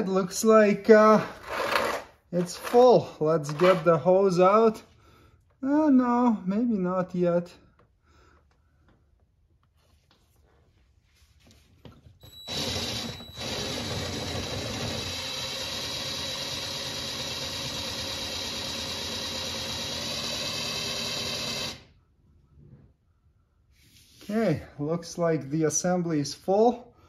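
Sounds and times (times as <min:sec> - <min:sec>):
fluid pump whining: 0:12.2 - 0:21.9.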